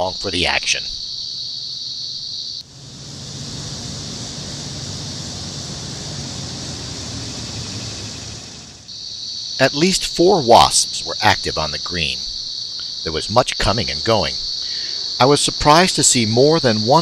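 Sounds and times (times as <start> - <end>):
faint low hum: 0.0 - 17.0
high-pitched insect chorus: 0.0 - 17.0
steady rushing noise: 2.6 - 9.0.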